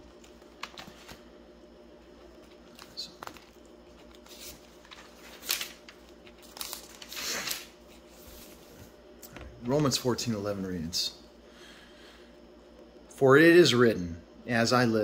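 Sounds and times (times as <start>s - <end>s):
thin pages rustling: 2.5s - 8.9s.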